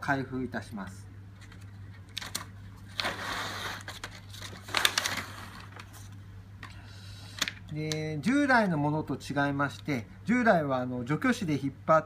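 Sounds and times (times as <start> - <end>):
package peeling and crinkling: 1.4 - 6.2
paper rustle: 1.4 - 6.2.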